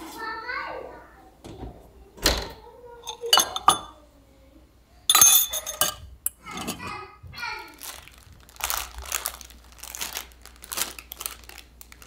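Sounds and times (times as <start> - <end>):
metal sieve clinking on glass bowl: 3.1 - 3.9, 5.1 - 6.8.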